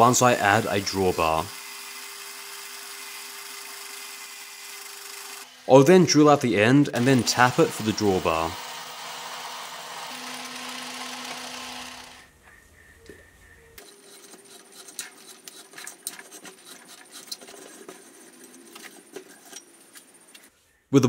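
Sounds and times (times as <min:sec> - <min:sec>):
metal lathe drilling whir: 0:07.0 - 0:12.3
tap wrench clicking and scraping: 0:13.8 - 0:18.0.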